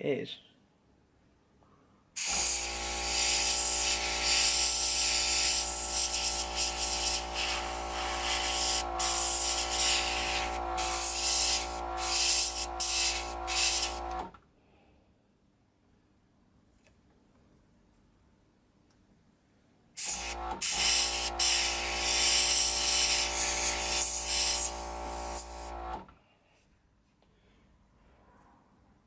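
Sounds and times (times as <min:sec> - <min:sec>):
airbrush spraying hiss: 0:02.2 - 0:14.1, 0:20.0 - 0:25.8
air compressor hum: 0:02.2 - 0:14.4, 0:20.0 - 0:26.1.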